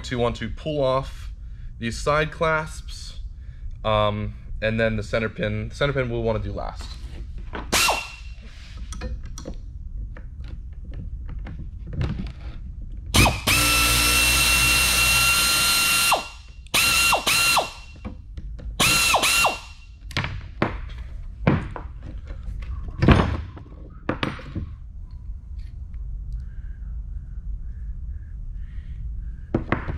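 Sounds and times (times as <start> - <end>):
power tool running in bursts: 13.2 - 17.9, 18.8 - 19.7.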